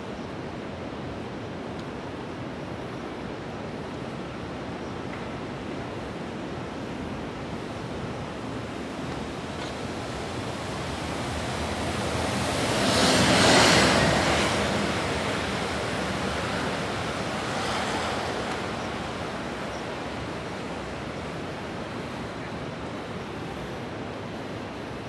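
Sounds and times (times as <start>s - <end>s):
city traffic on wet streets: 5.1s - 25.0s
tyres swishing on wet road: 8.2s - 23.0s.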